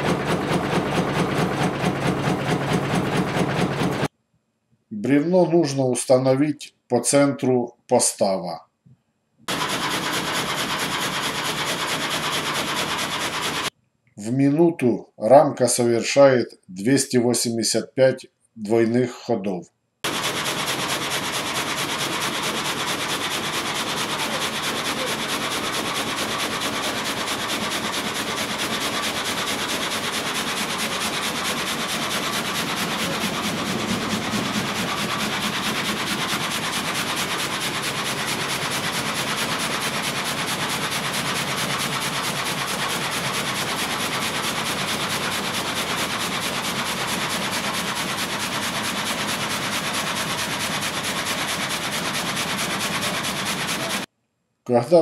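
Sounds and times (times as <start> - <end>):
gang saw sawing and clattering: 0.0 - 4.1, 9.5 - 13.7, 20.1 - 54.1.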